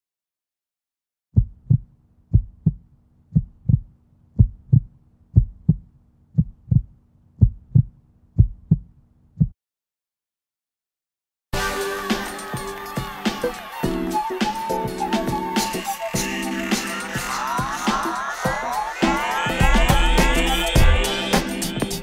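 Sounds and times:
heartbeat thumps: 0:01.4 - 0:09.6, 0:19.5 - 0:21.2.

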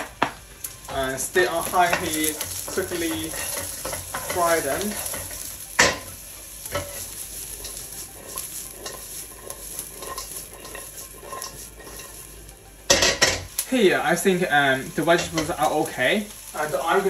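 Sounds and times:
vegetables sizzling in oil: 0:00.0 - 0:17.0
stirring scrapes in a wok: 0:00.8 - 0:13.6.

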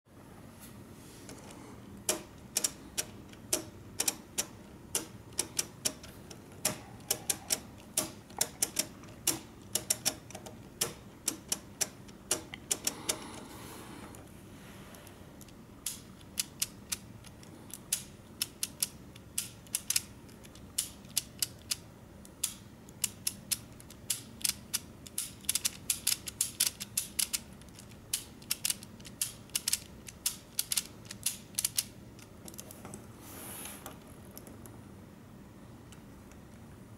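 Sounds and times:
plastic mechanism clicking: 0:15.4 - 0:32.6.

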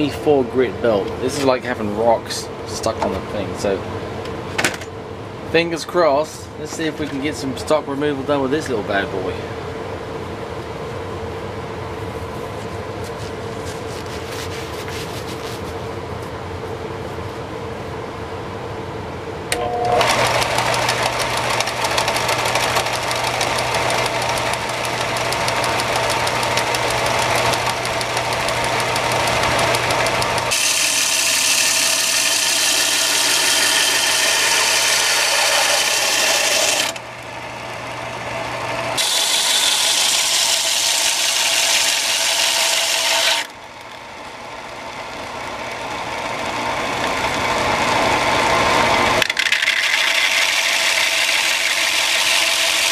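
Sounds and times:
belt sander motor hum: 0:19.5 - 0:52.9
sander grinding wood: 0:20.0 - 0:37.1, 0:37.7 - 0:43.5, 0:45.0 - 0:52.9.

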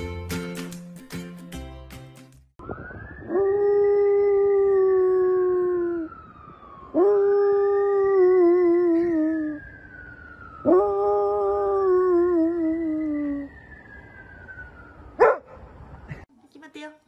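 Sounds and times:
wailing siren: 0:02.6 - 0:16.2
dog howling: 0:10.6 - 0:13.5.

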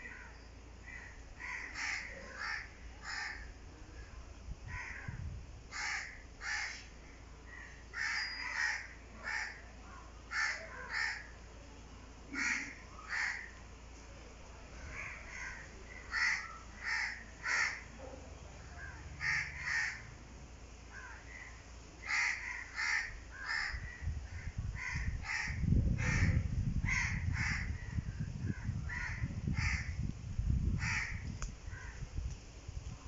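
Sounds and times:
crows cawing: 0:00.0 - 0:03.5, 0:04.7 - 0:06.9, 0:07.5 - 0:09.7, 0:10.3 - 0:11.4, 0:12.3 - 0:13.6, 0:14.8 - 0:18.0, 0:18.7 - 0:20.2, 0:20.9 - 0:30.0, 0:30.8 - 0:32.0.

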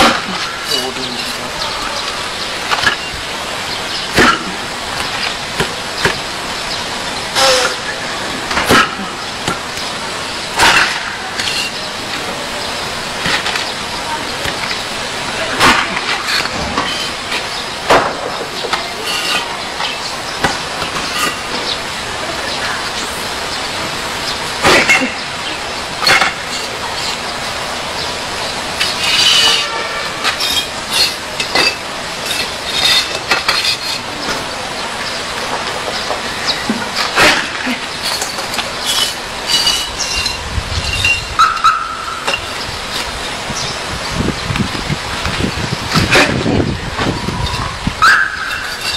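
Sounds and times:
steady background hiss: 0:00.0 - 0:48.9
squeaky scrape: 0:07.4 - 0:08.0, 0:11.4 - 0:11.8, 0:16.2 - 0:17.3, 0:19.0 - 0:19.6, 0:28.8 - 0:34.2, 0:37.0 - 0:43.1, 0:47.4 - 0:48.9
bricks scraping and knocking: 0:10.6 - 0:12.4, 0:13.2 - 0:21.8, 0:28.8 - 0:34.5, 0:35.5 - 0:43.1, 0:45.3 - 0:47.1
bricks cracking: 0:30.2 - 0:34.4.

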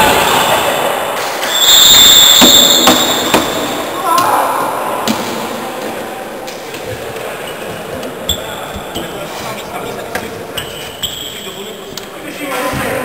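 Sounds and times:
high steady squeal: 0:00.0 - 0:04.0
players' voices: 0:03.7 - 0:13.0.

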